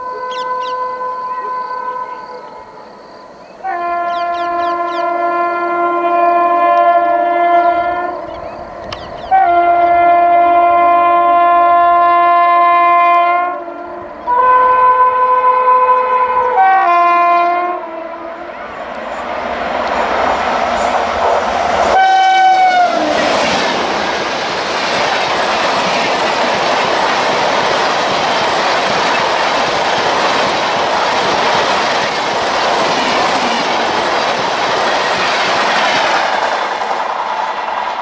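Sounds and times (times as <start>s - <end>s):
electric locomotive horn blasts: 0.0s - 2.9s, 3.6s - 8.4s, 9.2s - 18.7s, 21.8s - 23.6s.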